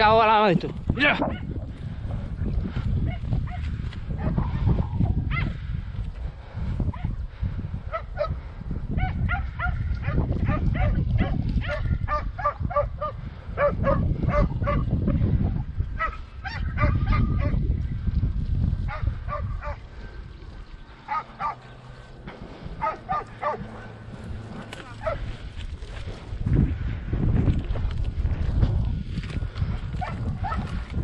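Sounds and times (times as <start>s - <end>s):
dogs barking: 5.3s - 5.5s, 7.9s - 8.4s, 9.0s - 14.9s, 16.0s - 17.6s, 18.9s - 19.8s, 21.1s - 21.7s, 22.8s - 23.8s, 24.8s - 25.3s, 30.0s - 30.7s.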